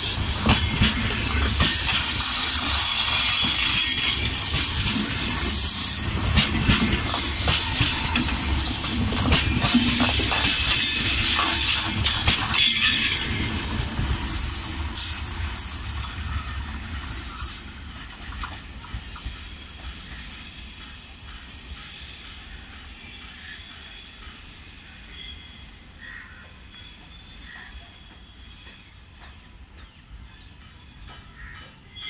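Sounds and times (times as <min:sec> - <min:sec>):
train wheels clacking over rails: 0:00.0 - 0:25.3, 0:26.3 - 0:32.0
train rumble: 0:00.0 - 0:32.0.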